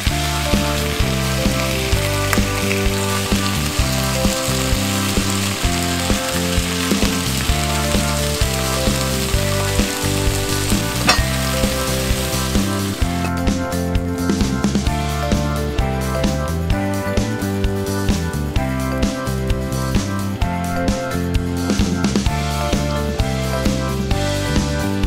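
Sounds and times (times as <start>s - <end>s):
liver and onions sizzling: 0.0s - 15.4s
background music: 0.0s - 25.0s.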